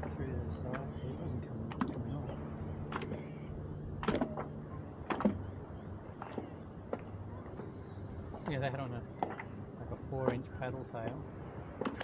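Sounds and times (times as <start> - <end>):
low steady hum: 0.0 - 12.0
fish knocking and slapping: 4.0 - 5.5, 11.8 - 12.0.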